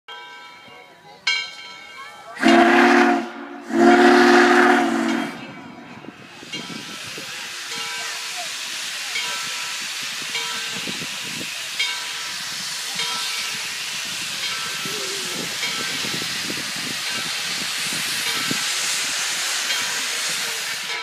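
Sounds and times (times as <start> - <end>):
locomotive steam hiss: 1.5 - 21.0.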